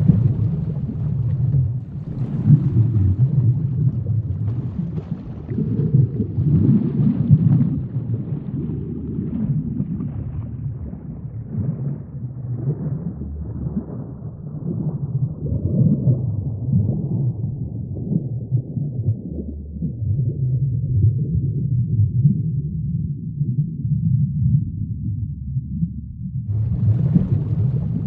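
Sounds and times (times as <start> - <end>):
faint crackles: 0.0 - 7.9, 26.5 - 28.0
low underwater rumble: 0.0 - 28.0.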